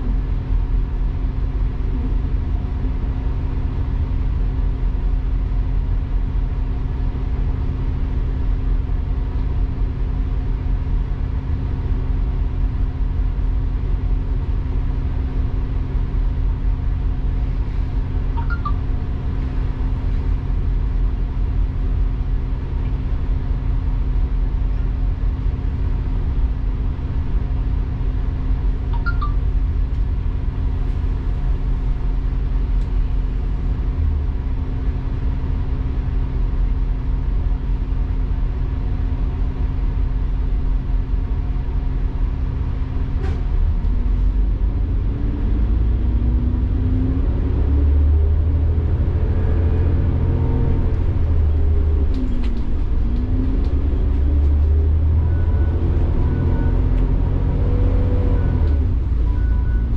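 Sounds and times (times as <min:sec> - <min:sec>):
bus engine and road rumble: 0:00.0 - 0:59.9
brief high squeaks: 0:18.4 - 0:18.8, 0:29.0 - 0:29.4.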